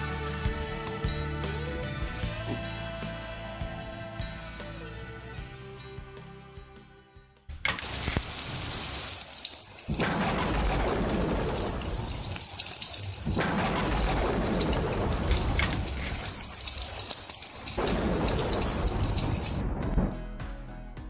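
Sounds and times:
heavy rain: 7.8 - 19.6.

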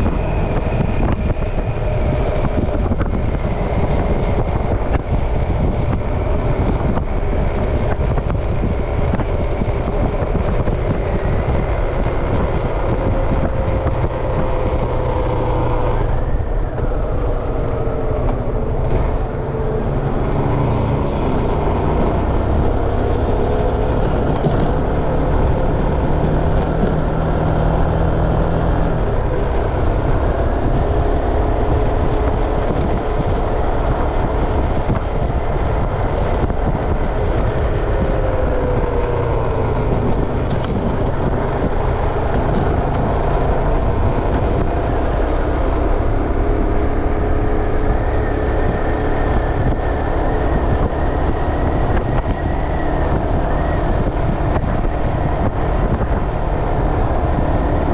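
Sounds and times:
faint engine hum: 0.0 - 57.9
wind and road noise: 0.0 - 57.9.

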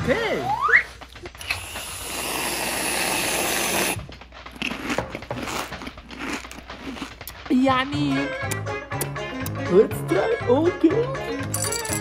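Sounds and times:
aerosol can hissing: 1.4 - 4.0.

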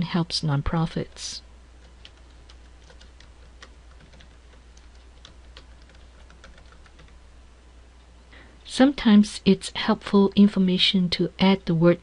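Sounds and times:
low steady hum: 0.0 - 12.0
keyboard keys clicking: 1.9 - 7.2.

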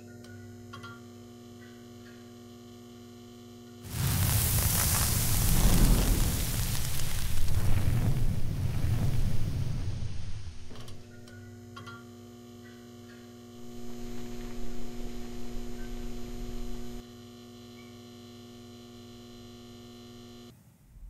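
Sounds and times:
humming drone of held tones: 11.0 - 20.5.

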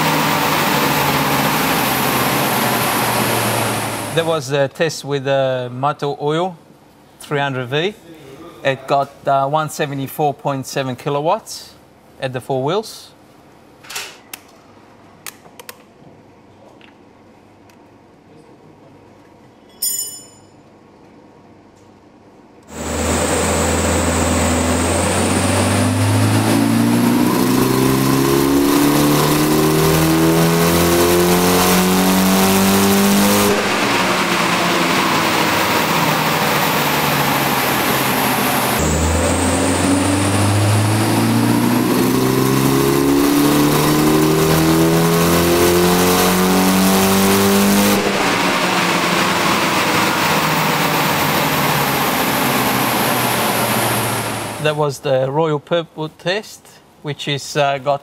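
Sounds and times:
car engine revving: 0.0 - 4.4, 22.7 - 54.8
high turbo whine: 0.0 - 4.5, 22.6 - 54.9.

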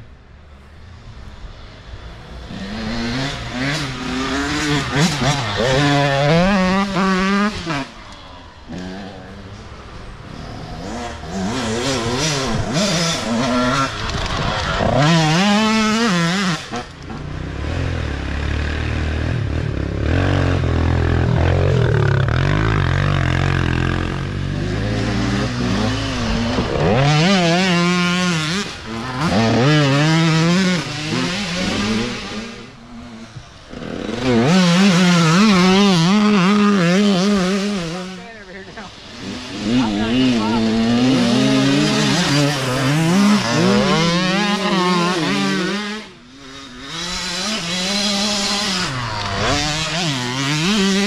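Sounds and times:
dirt bike engines revving: 0.0 - 51.0.

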